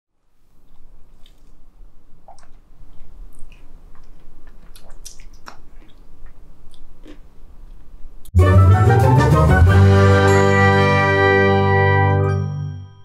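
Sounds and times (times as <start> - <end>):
lip smacks: 0.6 - 7.9
swallowing: 2.2 - 7.3.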